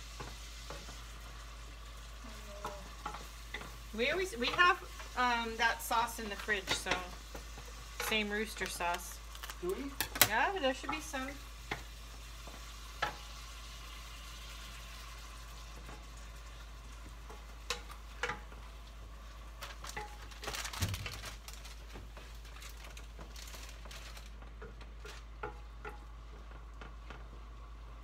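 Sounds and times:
meat sizzling in a frying pan: 0.0 - 26.3
spatula scraping and tapping pan: 0.1 - 1.2, 2.6 - 5.7, 6.3 - 9.1, 10.0 - 13.4, 17.2 - 18.7, 19.9 - 20.5, 24.5 - 27.3.

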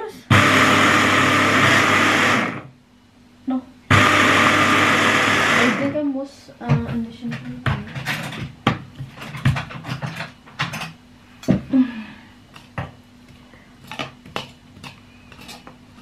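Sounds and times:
hand blender pulsing: 0.3 - 2.7, 3.9 - 6.0
fork scraping plastic bowl: 13.8 - 16.0.

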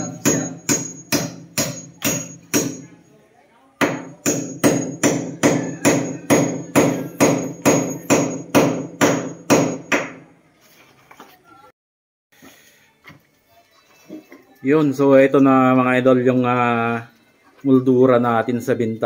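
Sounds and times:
hammer blows ringing: 0.0 - 3.0, 3.8 - 10.2.

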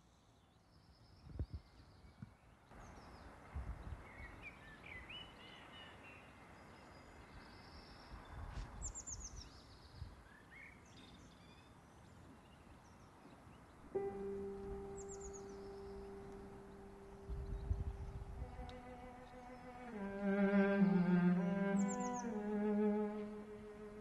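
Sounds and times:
small birds chirping: 0.0 - 24.0
steady low tone: 14.0 - 24.0
low rumble: 14.2 - 21.9.

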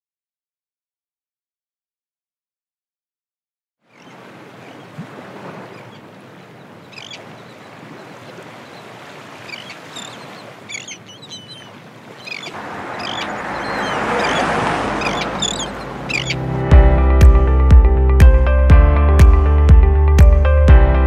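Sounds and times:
bird calls: 3.9 - 16.5
surf washing on shingle: 4.0 - 17.3
loud rushing noise: 12.5 - 17.7.

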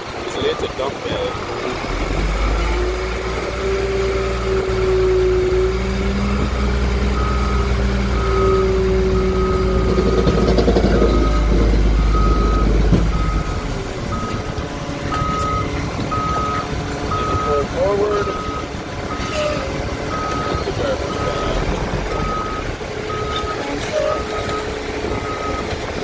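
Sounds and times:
diesel engine and hydraulic whine: 0.0 - 26.0
backup alarm beeping: 4.3 - 21.6, 22.2 - 25.7.

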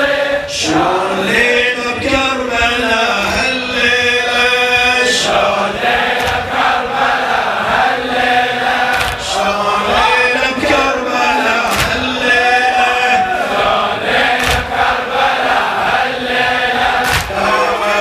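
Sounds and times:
men chanting together: 0.0 - 18.0
sharp thuds: 11.7 - 12.1.

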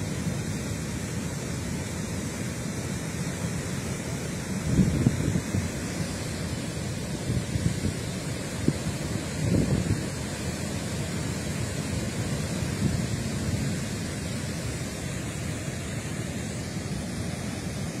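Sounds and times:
water rushing through spillway: 0.0 - 18.0.

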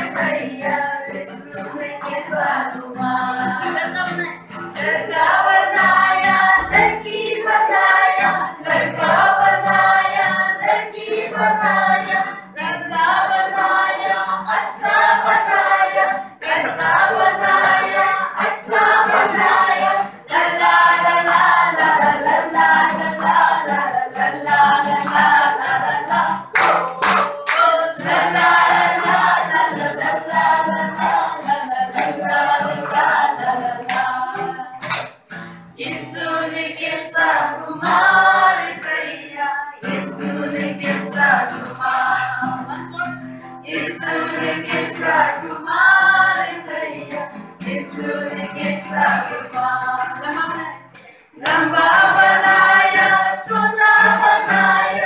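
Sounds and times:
group singing together: 0.0 - 55.0
hand claps: 16.4 - 36.0, 49.0 - 55.0.

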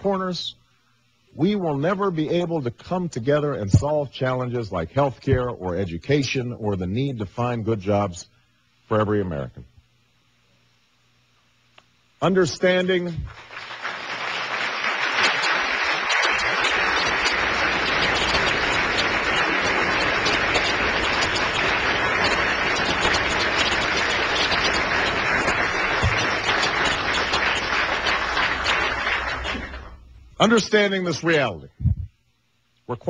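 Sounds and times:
audience applauding: 13.3 - 30.0.

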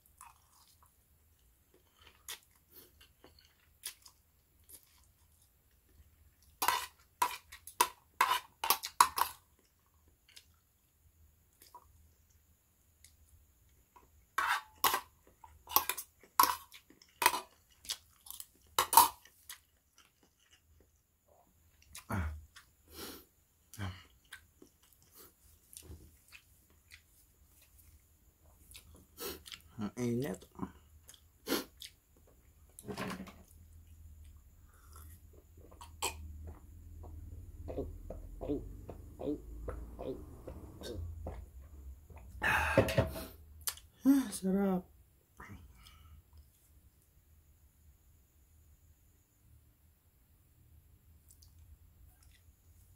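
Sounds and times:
person drinking from a mug: 42.2 - 43.4
person breathing out hard: 42.4 - 43.3.

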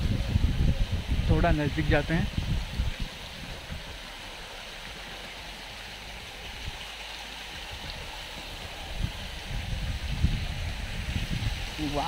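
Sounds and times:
water fountain splashing: 0.0 - 12.0.

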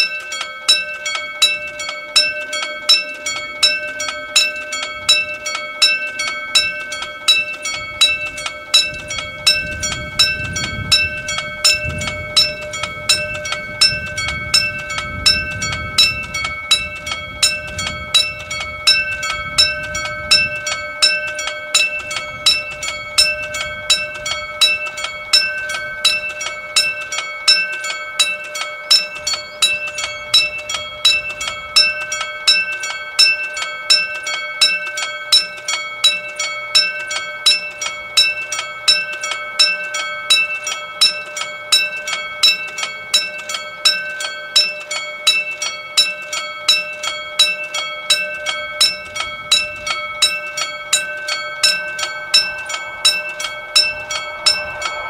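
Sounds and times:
railroad crossing bell ringing: 0.0 - 55.0.

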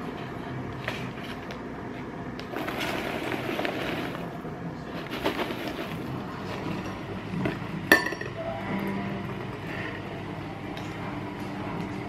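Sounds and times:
snack bag rustling: 2.4 - 6.2.

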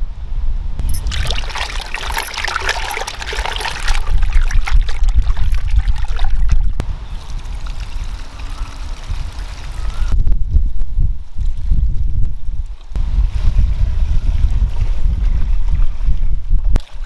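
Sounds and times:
water splashing and trickling: 0.8 - 10.1.

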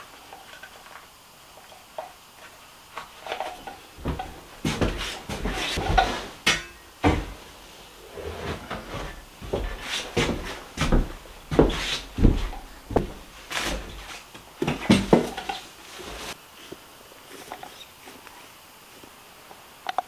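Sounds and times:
footsteps on floor: 3.6 - 6.4, 7.0 - 7.5, 8.4 - 16.4.

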